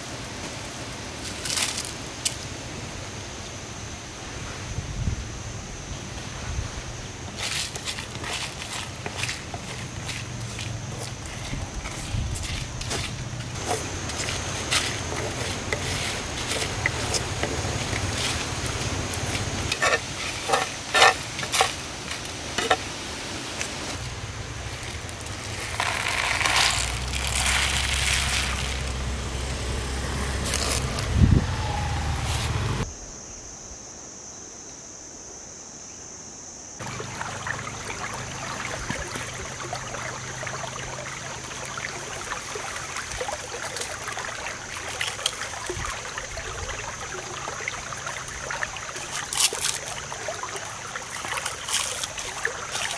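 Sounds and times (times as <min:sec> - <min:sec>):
shallow stream flowing: 0:06.1 - 0:32.8, 0:36.8 - 0:52.9
wooden stick scraping clay pot: 0:07.4 - 0:18.6, 0:19.2 - 0:22.9, 0:24.8 - 0:29.0
crackling wood fire: 0:07.4 - 0:31.1.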